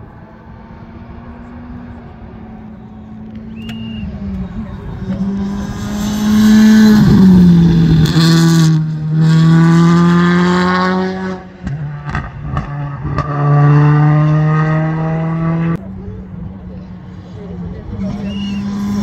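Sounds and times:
rally car engine revving hard: 4.5 - 15.8.

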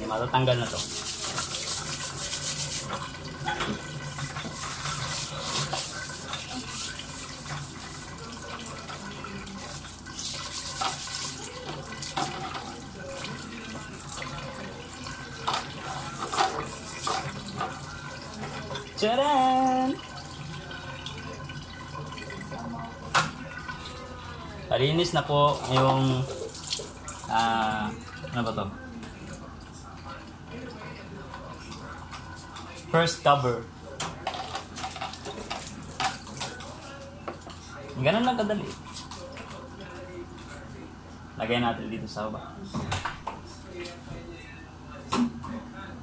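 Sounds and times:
steel wool scrubbing wire: 0.6 - 3.1, 4.1 - 8.2.

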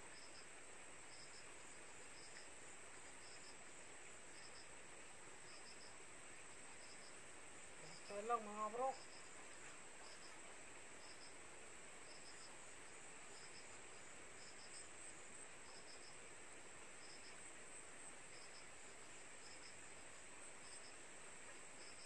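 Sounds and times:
insect double chirp: 0.1 - 0.5, 1.1 - 3.7, 4.3 - 4.8, 5.4 - 11.4, 12.0 - 16.2, 17.0 - 22.0
insect high-pitched trill: 0.1 - 0.5, 4.3 - 4.7, 5.5 - 6.0, 7.8 - 10.4, 11.0 - 11.4, 12.1 - 16.2, 18.3 - 19.9, 20.6 - 21.0, 21.8 - 22.0.

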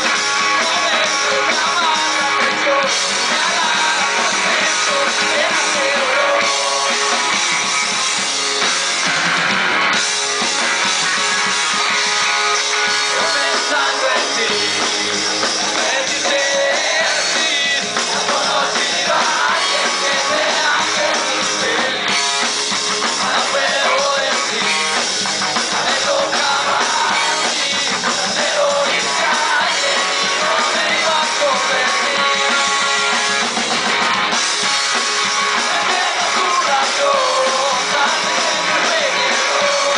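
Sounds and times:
drum kit: 0.0 - 39.9
electric guitars: 0.0 - 39.9
person singing: 0.4 - 7.2, 13.0 - 14.9, 15.6 - 22.3, 23.1 - 25.0, 25.6 - 32.7, 35.5 - 39.9.

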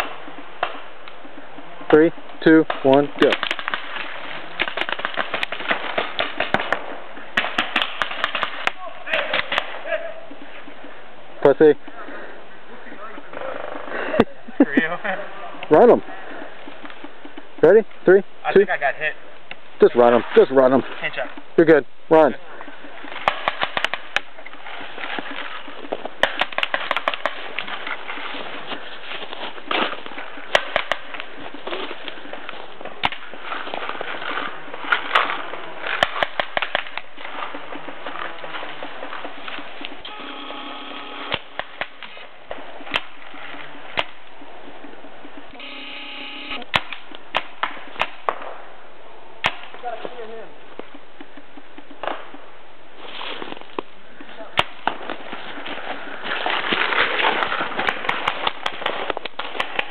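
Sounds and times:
paintball markers firing: 2.7 - 9.8, 23.0 - 28.1, 29.7 - 40.0, 41.2 - 44.3, 46.6 - 48.6, 54.6 - 59.9.

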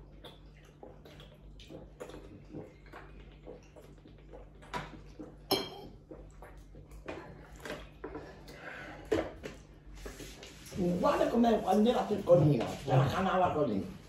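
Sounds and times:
swallowing from plastic bottle: 0.0 - 9.3.

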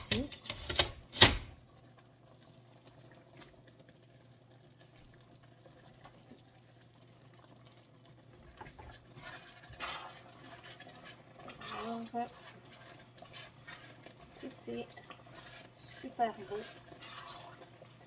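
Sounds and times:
sauce bubbling in a wok: 1.5 - 18.0
spatula stirring and tapping pan: 8.6 - 18.0.

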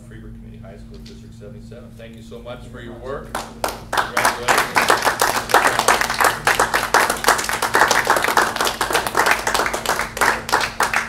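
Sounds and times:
people applauding: 3.3 - 11.0.

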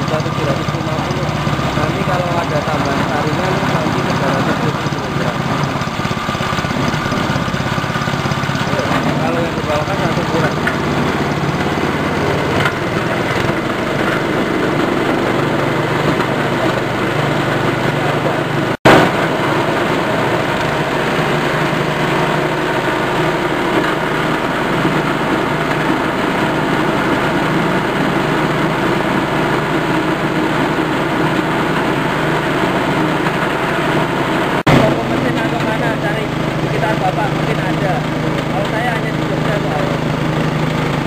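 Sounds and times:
small petrol engine running mill: 0.0 - 41.0.

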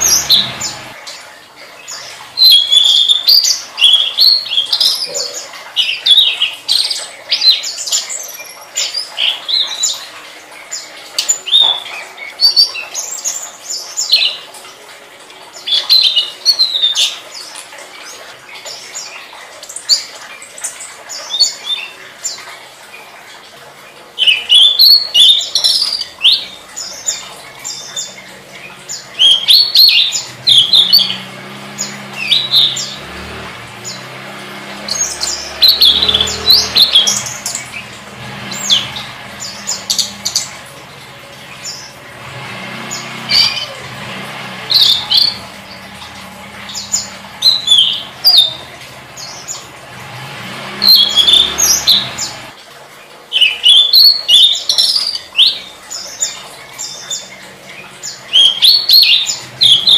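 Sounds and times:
songbird chirping: 0.0 - 14.9, 24.2 - 52.6.

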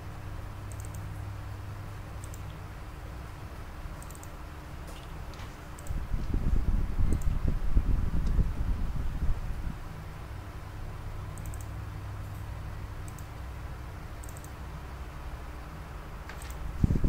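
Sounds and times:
steady low hum: 0.0 - 17.0
faint high ticks: 0.7 - 1.1, 4.0 - 4.4, 11.4 - 11.7, 13.0 - 13.3, 14.2 - 14.6.

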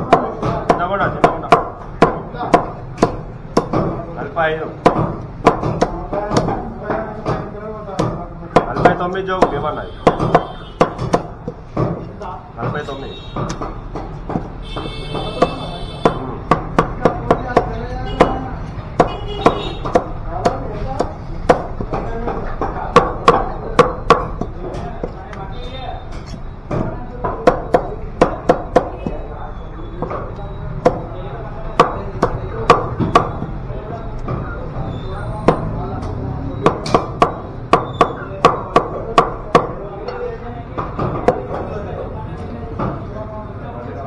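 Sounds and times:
cleaver chopping on wooden block: 0.0 - 4.0, 4.8 - 12.8, 13.4 - 25.2, 26.2 - 29.2, 31.7 - 33.5, 36.6 - 39.8.

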